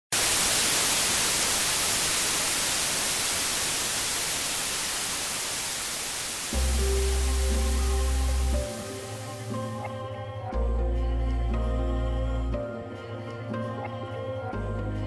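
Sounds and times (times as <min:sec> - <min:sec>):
television static hiss: 0:00.1 - 0:10.0
music with deep bass: 0:06.6 - 0:15.0.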